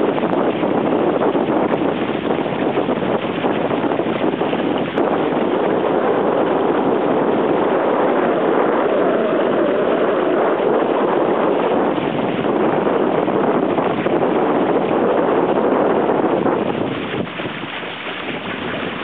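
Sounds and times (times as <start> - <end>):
water rushing along boat bow: 0.0 - 19.0
wind buffeting microphone: 0.0 - 19.0.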